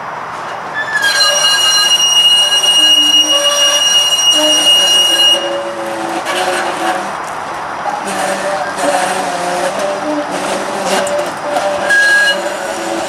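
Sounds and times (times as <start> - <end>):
rail clatter: 0.0 - 13.0
tram wheels squealing: 0.0 - 13.0.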